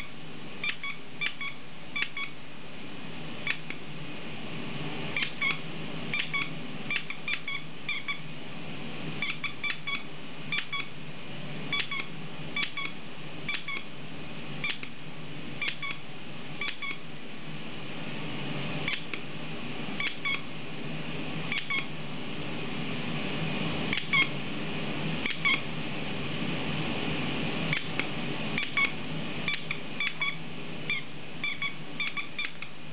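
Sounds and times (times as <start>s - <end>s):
squeaky toy squeaking: 0.6s - 2.3s, 5.2s - 8.2s, 9.2s - 10.9s, 11.7s - 12.9s, 13.5s - 13.8s, 15.6s - 16.0s, 16.6s - 17.0s, 29.5s - 32.6s.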